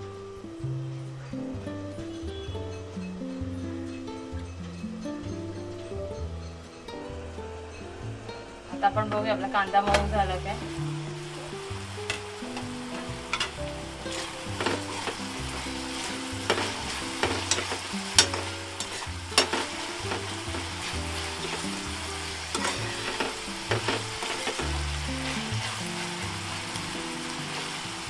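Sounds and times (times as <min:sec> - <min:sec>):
onions sizzling in hot oil: 0:00.0 - 0:28.0
steel spoon scraping pan: 0:13.2 - 0:26.2.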